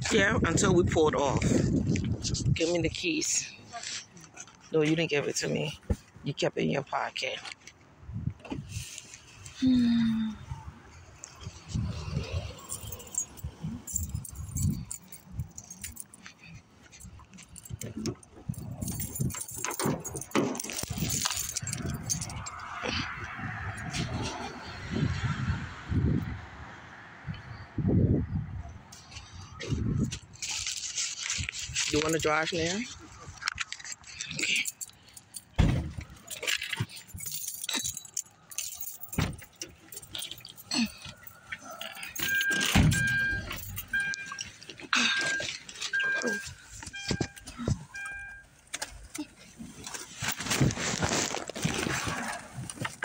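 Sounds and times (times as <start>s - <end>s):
keys jangling: 11.5s - 24.1s, 33.4s - 50.7s
clicks and rustles: 12.6s - 24.4s, 28.9s - 53.0s
car electronic chime beeping: 42.2s - 44.4s, 45.1s - 48.5s.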